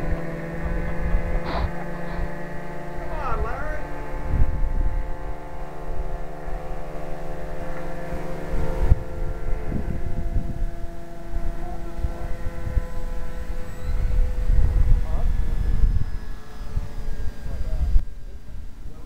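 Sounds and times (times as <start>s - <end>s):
low rumble: 0.0s - 6.8s
model airplane motor whine: 0.0s - 19.0s.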